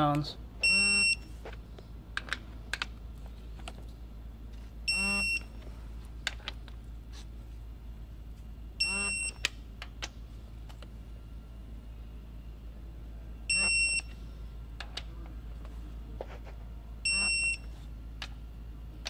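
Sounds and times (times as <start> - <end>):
torque wrench beeping: 0.6 - 1.3, 4.8 - 5.6, 8.8 - 9.5, 13.5 - 14.2, 17.0 - 17.7.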